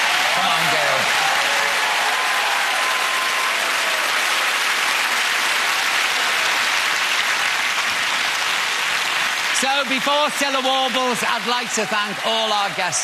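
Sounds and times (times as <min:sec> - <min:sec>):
audience applauding: 0:00.0 - 0:13.0.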